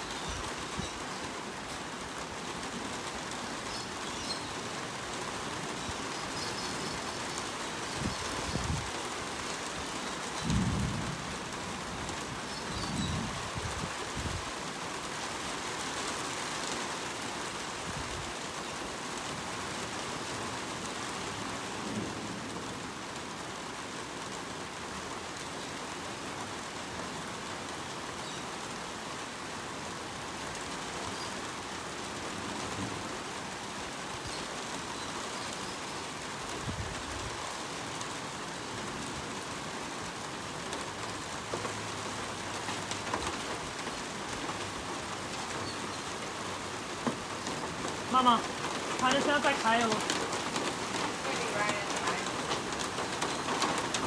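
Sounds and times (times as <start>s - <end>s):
steady rain falling: 0.0s - 54.0s
hail taps: 47.0s - 54.0s.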